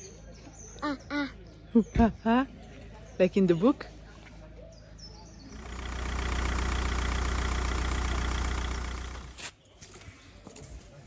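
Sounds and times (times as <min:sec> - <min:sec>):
vehicle engine running: 0:05.3 - 0:09.4.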